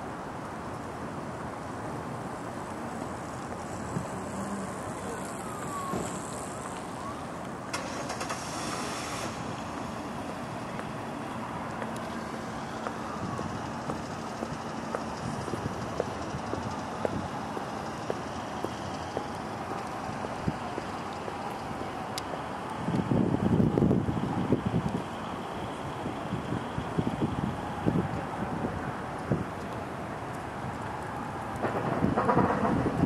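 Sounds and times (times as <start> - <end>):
distant road traffic rumble: 0.0 - 33.0.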